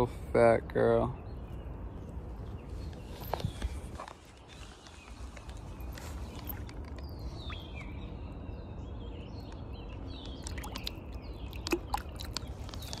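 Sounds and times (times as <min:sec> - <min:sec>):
bird whistling calls: 0:06.4 - 0:08.2
water splashing and dripping: 0:10.2 - 0:13.0.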